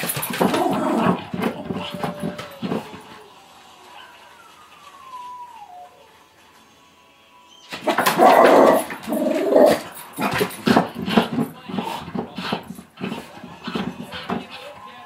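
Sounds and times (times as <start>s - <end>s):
dog growling and barking: 0.1s - 3.1s, 7.7s - 11.5s.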